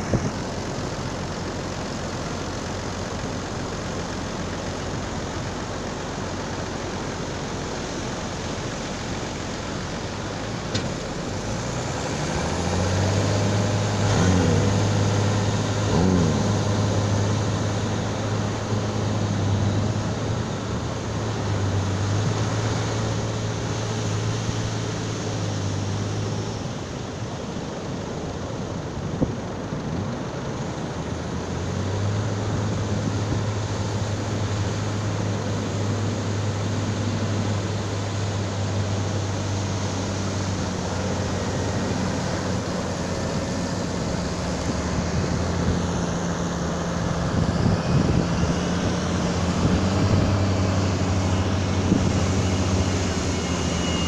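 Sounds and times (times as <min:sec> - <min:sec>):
tractor diesel engine: 0:00.0 - 0:54.0
waves breaking: 0:30.9 - 0:47.3.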